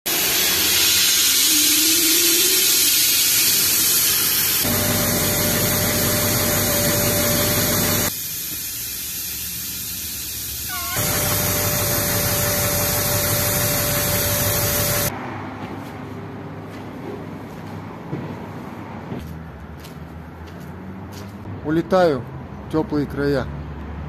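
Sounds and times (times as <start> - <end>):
compressed air hissing: 0.1 - 15.1.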